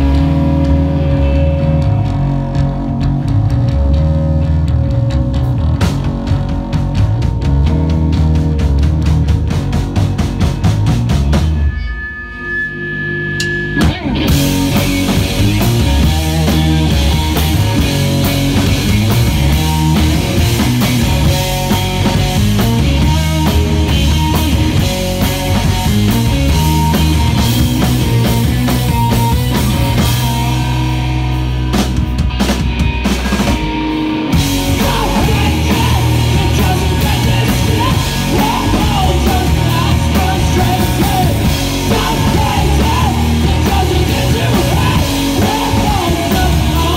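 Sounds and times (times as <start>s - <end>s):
live rock band playing: 0.0s - 46.9s
person singing: 34.6s - 46.9s.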